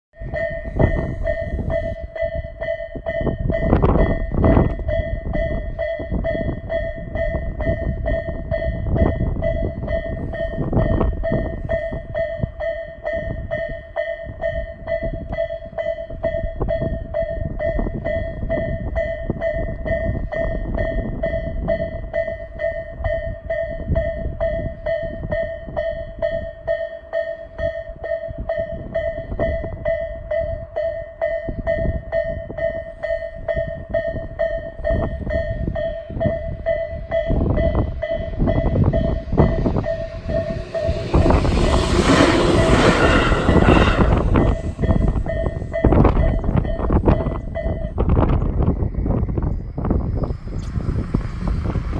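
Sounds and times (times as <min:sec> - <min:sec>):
level crossing warning bell: 0:00.2 - 0:51.9
low rumbles: 0:31.4 - 0:51.9.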